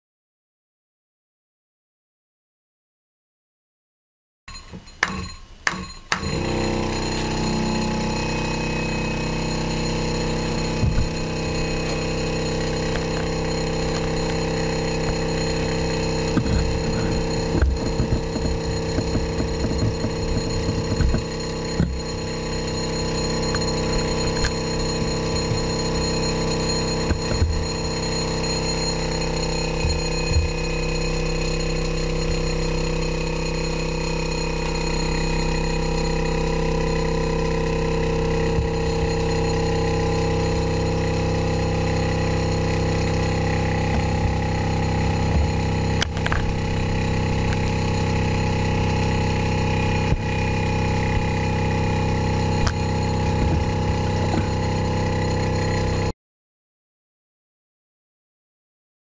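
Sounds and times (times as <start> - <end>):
stirling engine humming: 6.2 - 33.0, 36.4 - 56.1.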